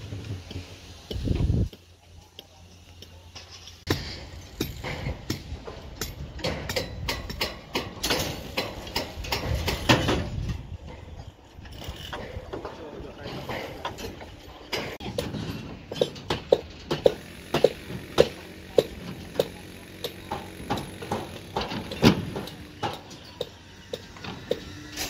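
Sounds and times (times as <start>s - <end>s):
metallic clicks on rebar: 3.0s - 10.6s.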